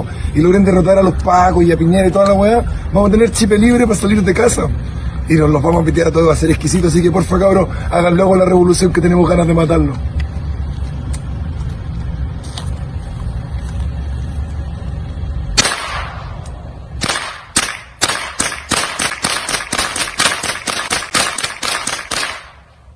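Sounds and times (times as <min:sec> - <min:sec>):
low rumble: 0:00.0 - 0:18.7
gunshots: 0:15.6 - 0:16.4, 0:17.0 - 0:22.7
rapid gunfire: 0:17.0 - 0:22.7.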